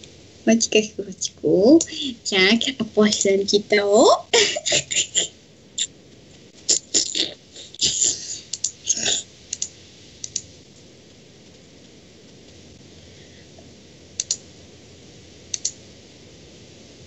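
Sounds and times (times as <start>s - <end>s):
mouse and keyboard clicks: 14.2s - 14.4s, 15.5s - 15.8s.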